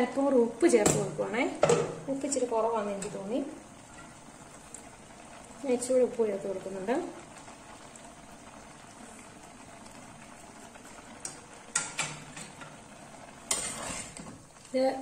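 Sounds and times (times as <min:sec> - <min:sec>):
curry bubbling in a pot: 0:00.0 - 0:15.0
spoon scraping and stirring pot: 0:13.4 - 0:14.4.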